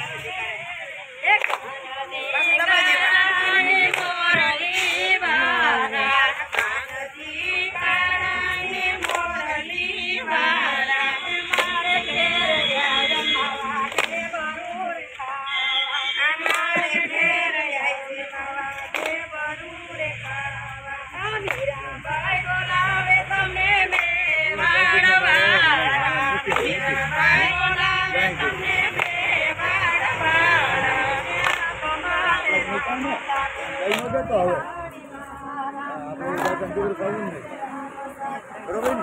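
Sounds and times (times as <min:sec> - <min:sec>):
women singing in unison: 0:00.0 - 0:39.0
hand claps: 0:01.2 - 0:09.8, 0:10.4 - 0:15.4, 0:16.2 - 0:19.6, 0:20.2 - 0:21.8, 0:23.0 - 0:32.3, 0:33.3 - 0:34.2, 0:36.3 - 0:36.8, 0:38.8 - 0:39.0.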